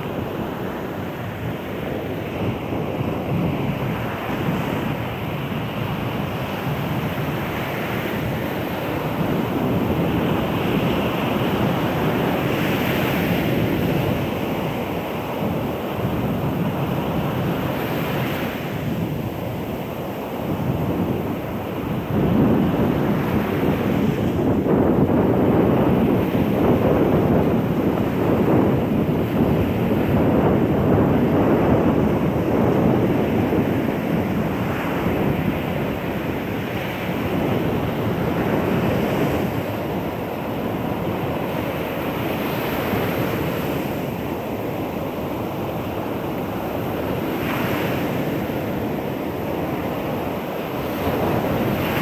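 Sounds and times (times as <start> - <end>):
waves breaking on shore: 0.0 - 52.0.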